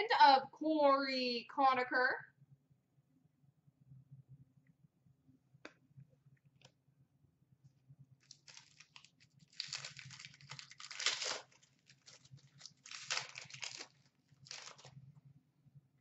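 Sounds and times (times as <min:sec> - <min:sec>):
card pack wrapper crinkling: 0:08.2 - 0:15.0.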